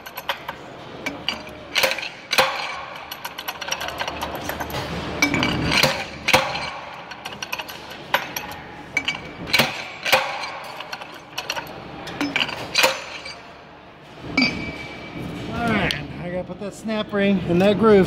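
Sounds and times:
metallic knocks and clinks: 0.0 - 13.5, 14.3 - 15.2.

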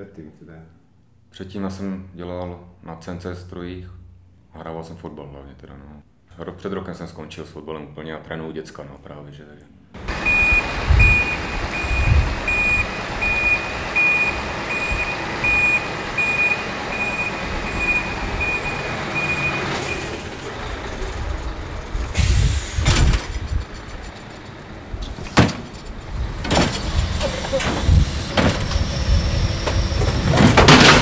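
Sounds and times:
reversing alarm beeping: 10.0 - 20.2
rumbling and clunks: 10.0 - 31.0
truck engine running: 10.0 - 31.0.

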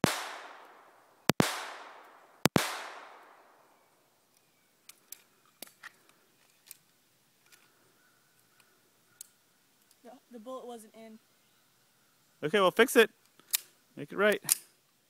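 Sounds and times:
pistol shots with echo: 0.0 - 3.8.

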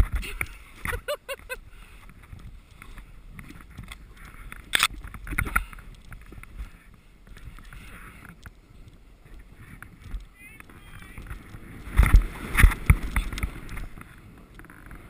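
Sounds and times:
snowboard scraping through snow: 11.3 - 15.0.

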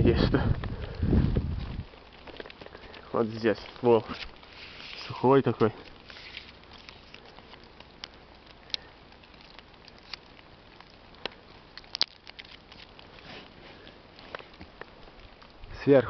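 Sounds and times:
fingers picking bark flakes: 2.2 - 14.9
faint hiss: 2.2 - 16.0.

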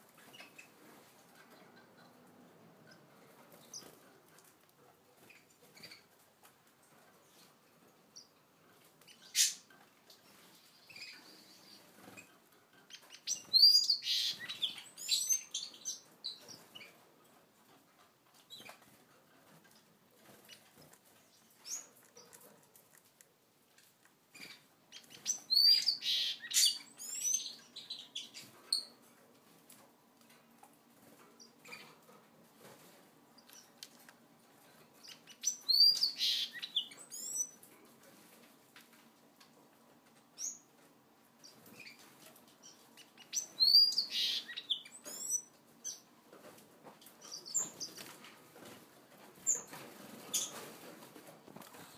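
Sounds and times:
finches chirping: 12.9 - 16.9, 24.3 - 29.0, 35.0 - 37.6, 42.6 - 46.1.

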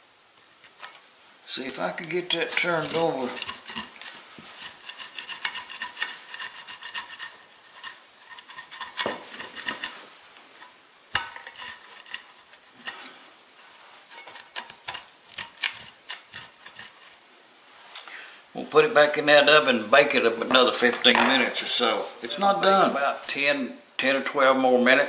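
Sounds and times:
spatula scraping cast iron skillet: 0.7 - 17.3.

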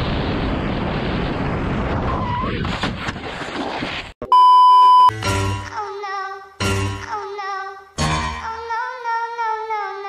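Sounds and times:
wind and road noise: 0.0 - 4.1
electronic beep: 4.2 - 5.2
music: 5.1 - 7.4, 8.0 - 8.8.

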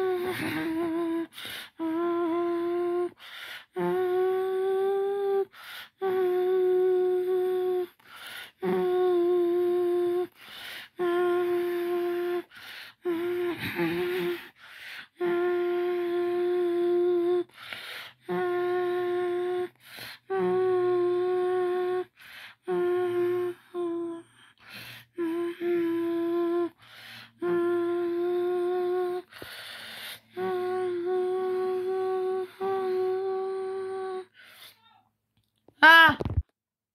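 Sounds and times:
person humming: 0.0 - 8.0, 8.6 - 17.5, 18.2 - 26.8, 27.4 - 29.4, 30.3 - 34.4
sharp breath: 17.5 - 18.2, 26.8 - 27.4, 29.3 - 30.3, 34.3 - 34.9.

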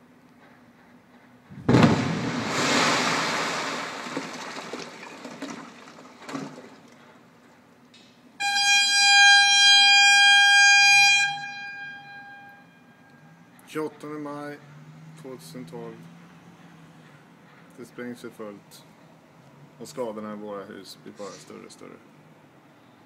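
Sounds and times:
heavy blast bang: 1.5 - 5.4
smaller thump: 1.5 - 6.7
signal horn steady tone: 8.4 - 13.4.

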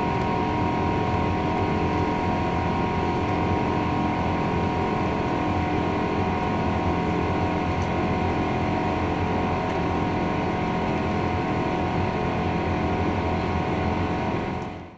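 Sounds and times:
jet engines droning in cabin: 0.0 - 14.9.

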